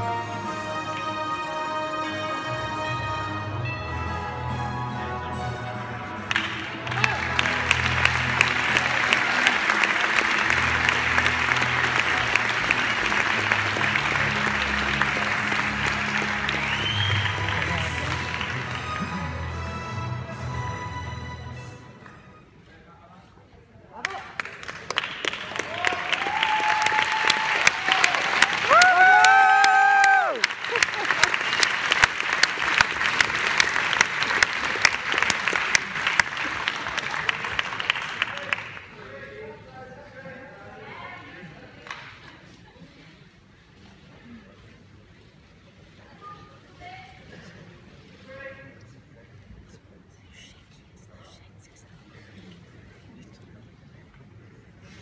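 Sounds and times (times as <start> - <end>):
low music: 0.0 - 22.8
audience applauding: 6.2 - 19.8, 24.0 - 39.1.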